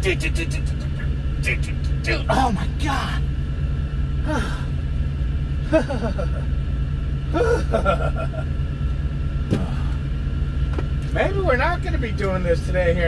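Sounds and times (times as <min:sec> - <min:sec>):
man grunting and muttering: 0:00.0 - 0:03.2, 0:04.2 - 0:04.7, 0:07.3 - 0:08.4, 0:09.5 - 0:10.0
diesel truck engine idling: 0:00.0 - 0:13.0.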